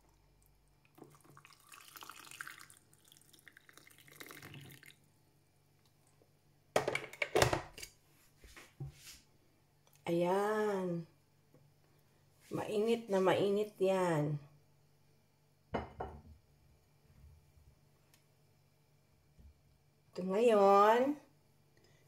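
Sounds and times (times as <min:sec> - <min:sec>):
water pouring into mug: 0:00.0 - 0:05.1.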